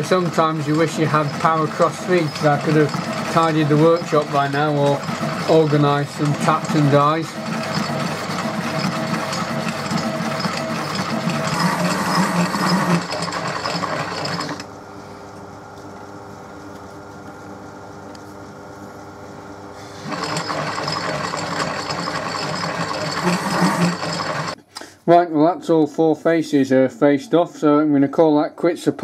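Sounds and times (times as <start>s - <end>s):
lathe gear train whirring: 0.0s - 14.8s, 19.5s - 24.6s.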